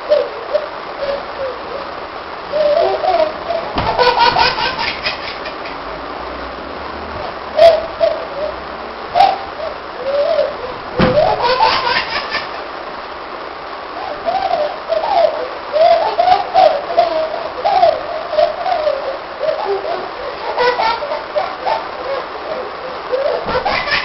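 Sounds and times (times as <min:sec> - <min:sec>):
baby cooing and giggling: 0:02.5 - 0:05.6, 0:09.2 - 0:12.6, 0:14.0 - 0:24.0
baby squealing: 0:02.5 - 0:05.8, 0:10.2 - 0:12.6, 0:18.9 - 0:24.0.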